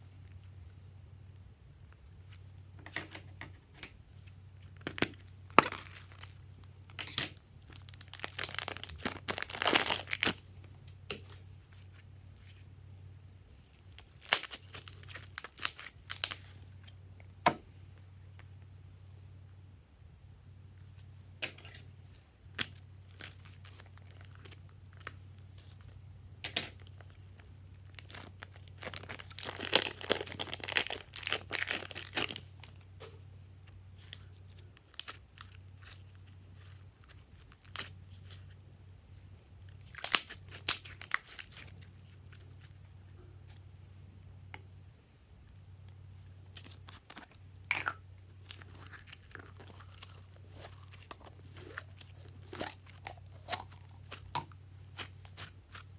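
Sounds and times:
steady low hum: 0.0 - 55.9
plastic crinkling: 4.2 - 12.7, 13.7 - 17.0, 21.6 - 26.0, 26.6 - 38.6, 39.7 - 43.6, 48.3 - 55.9
sticky slime crackles: 4.6 - 12.7, 13.8 - 17.0, 26.8 - 38.6, 39.7 - 43.6, 48.3 - 55.9.

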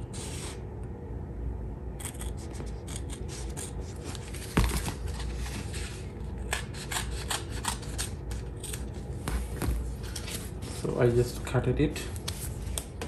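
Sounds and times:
scissors snipping tape: 6.4 - 8.9.

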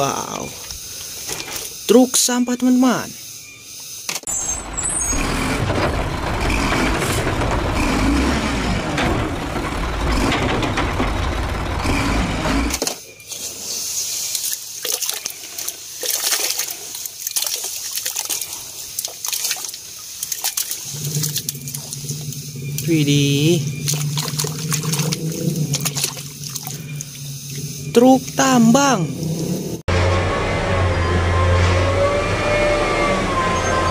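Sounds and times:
garbage truck engine rumble: 4.3 - 12.8, 20.8 - 33.9
splashes into muddy water: 14.3 - 22.0, 23.8 - 27.1.

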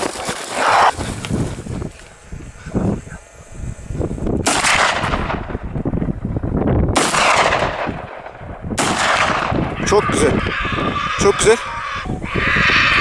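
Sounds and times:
gunshots with long echo: 4.4 - 5.6, 6.9 - 9.7.

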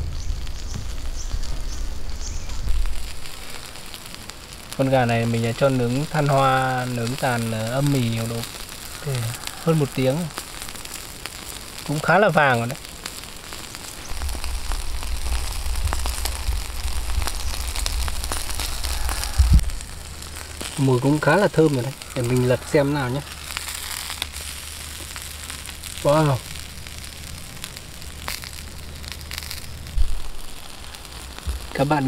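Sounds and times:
low rumble: 0.0 - 4.0, 14.1 - 20.8, 23.3 - 31.8
charcoal fire crackling and hissing: 0.0 - 32.0.

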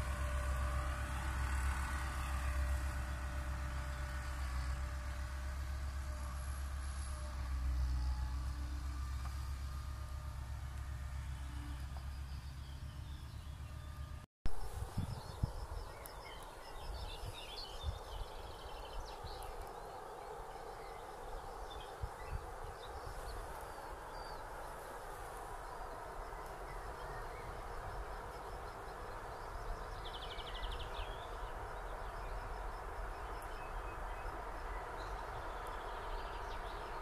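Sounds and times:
outdoor background noise: 0.0 - 37.0
small birds chirping: 26.3 - 37.0.

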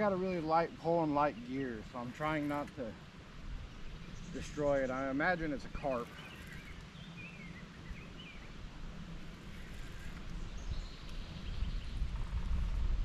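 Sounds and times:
outdoor background noise: 0.0 - 13.0
bird chirping: 3.7 - 8.6, 9.4 - 12.4.

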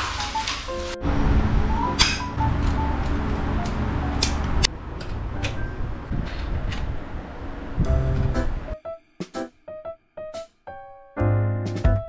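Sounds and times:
background music: 0.0 - 4.7, 7.9 - 12.0.

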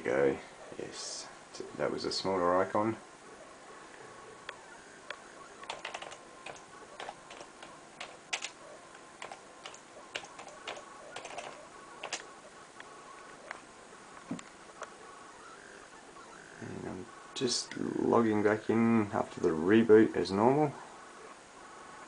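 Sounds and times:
computer keyboard typing: 5.6 - 8.6, 9.2 - 12.3.

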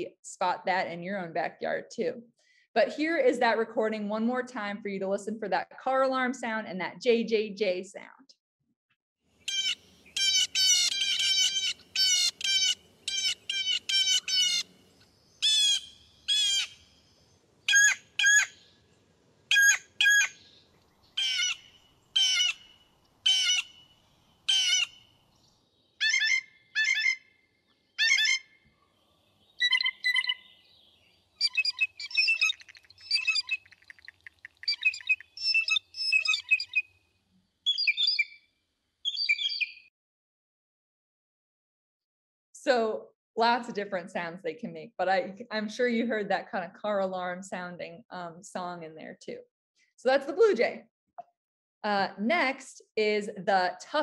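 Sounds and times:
blue jays calling: 9.4 - 14.8, 15.4 - 16.9, 21.2 - 25.1
blue jay song: 9.4 - 18.8, 19.5 - 37.0, 37.6 - 39.9.

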